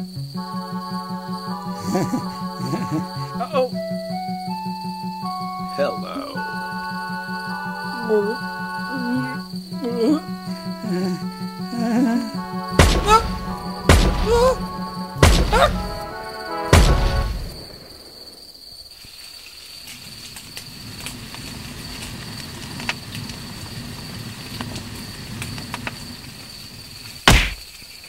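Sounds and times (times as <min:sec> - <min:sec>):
film music: 0:00.0 - 0:18.2
rising wail: 0:05.8 - 0:17.6
loud bangs: 0:12.7 - 0:18.4.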